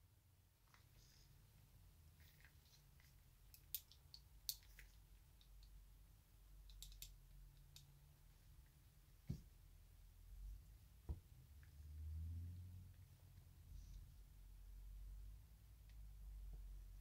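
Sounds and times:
faint low hum: 0.0 - 17.0
metallic clicks of pistol parts: 3.5 - 5.8, 6.6 - 7.9.

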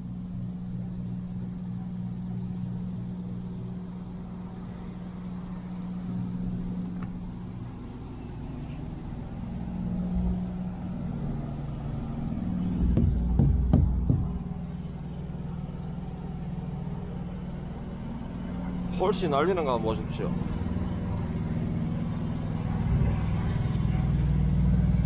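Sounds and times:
diesel trucks idling: 0.0 - 25.0
loud low thumps: 12.7 - 14.6.

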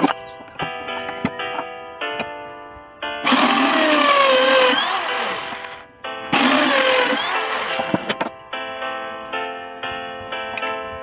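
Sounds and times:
electric drill boring into wood: 3.2 - 8.2.

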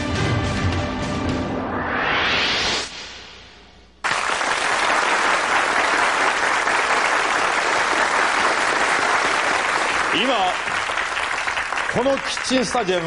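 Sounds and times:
theme music: 0.0 - 3.8
audience applauding: 4.0 - 13.0.

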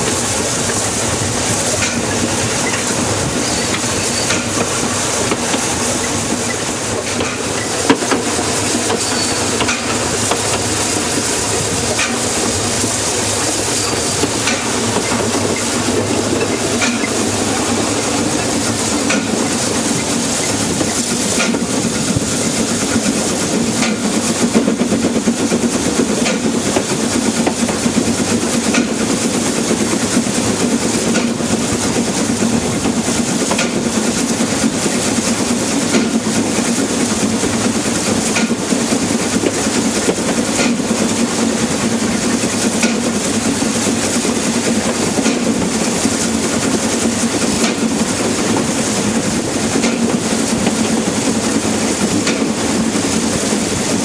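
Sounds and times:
wheels clicking over rail joints: 0.0 - 17.6, 35.8 - 52.9
steam locomotive rumble and hiss: 0.0 - 54.0.

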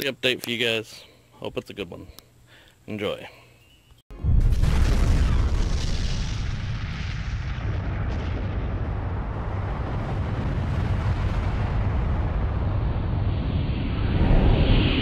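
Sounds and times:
explosion with deep rumble: 4.1 - 15.0.

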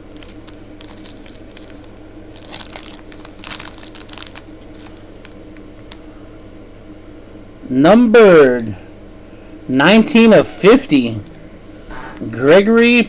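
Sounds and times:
plastic wrapper crinkling: 0.0 - 6.0.

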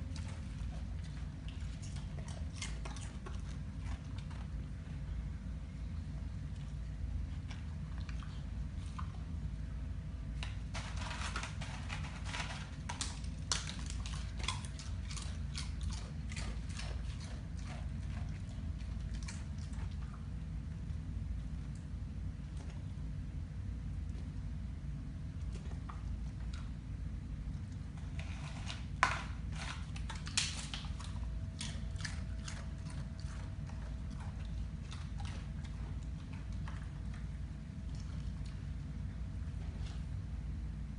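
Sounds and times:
dog crunching chips: 0.0 - 4.8, 10.4 - 20.1, 27.6 - 38.7.

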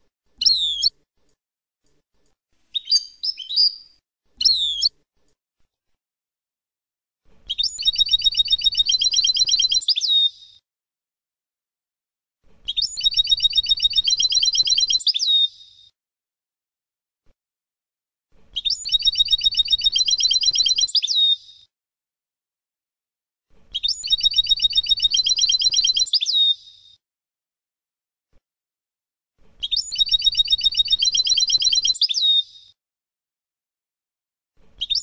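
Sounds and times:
goldfinch trilling song: 7.5 - 10.3, 12.8 - 15.5, 18.6 - 21.4, 23.8 - 26.6, 29.6 - 32.6.

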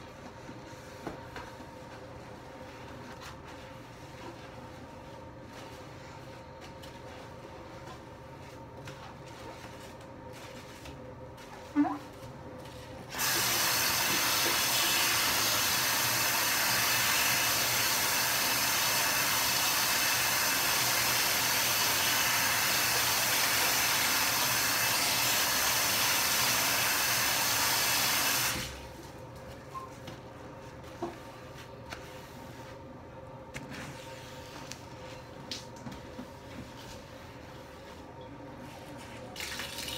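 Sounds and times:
faucet running water: 13.1 - 28.8, 39.4 - 39.9.

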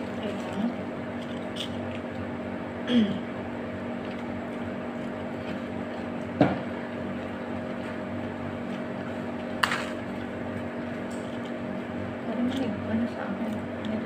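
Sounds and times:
mechanical room hum: 0.0 - 14.0.

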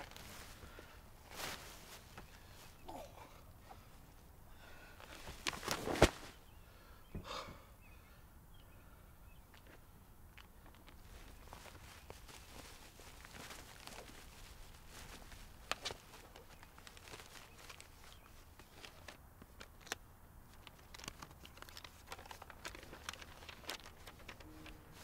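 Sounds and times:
plastic bag rustling: 0.0 - 2.9, 5.0 - 6.4, 10.7 - 25.0
paper envelope being opened: 5.0 - 6.4, 10.8 - 25.0.

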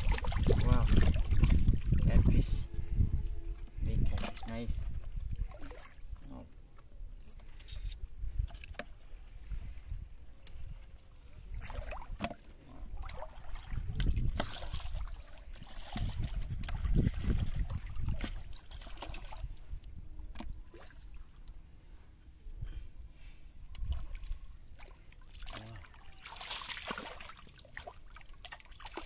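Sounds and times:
water sloshing around person wading: 0.0 - 22.3, 23.0 - 29.0.

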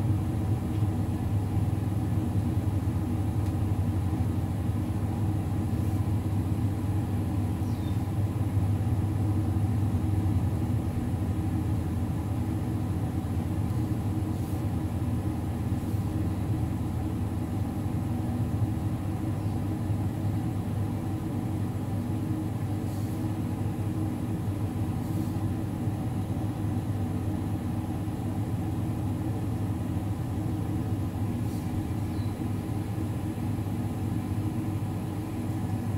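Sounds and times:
low mechanical hum: 0.0 - 35.9.

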